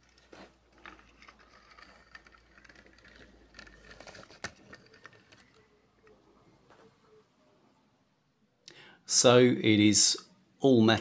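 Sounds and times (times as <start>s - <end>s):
toy wheels rolling on mat: 0.0s - 6.8s.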